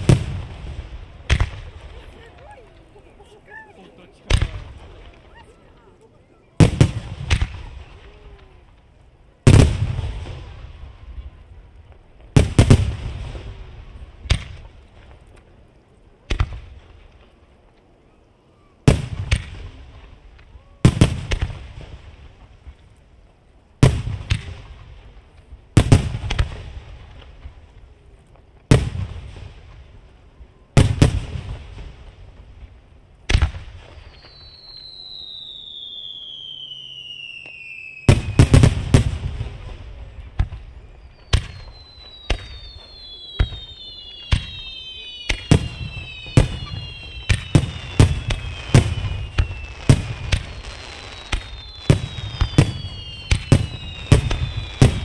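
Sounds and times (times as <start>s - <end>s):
firework shells bursting: 33.3s - 55.0s.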